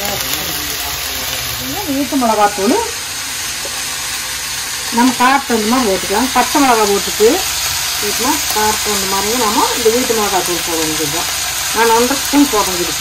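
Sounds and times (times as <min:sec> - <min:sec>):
cabbage sizzling in a pan: 0:00.0 - 0:13.0
woman talking: 0:01.6 - 0:03.0, 0:04.9 - 0:13.0.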